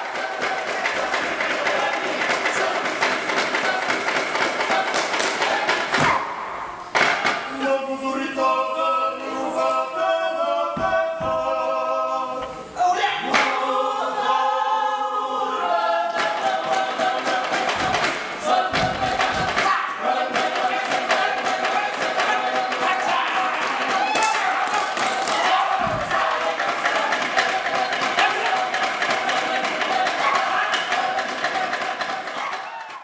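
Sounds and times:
sharp percussive strikes: 0.0s - 7.6s, 16.1s - 33.0s
group chanting: 0.0s - 33.0s.

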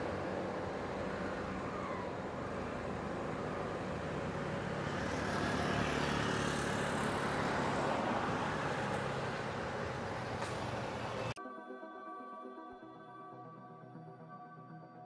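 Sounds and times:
coach engine running: 0.0s - 11.4s
tyres rolling on road: 0.0s - 11.4s.

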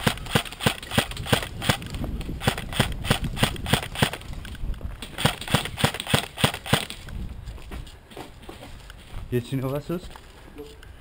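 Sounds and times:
footsteps on gravel: 7.0s - 10.8s.

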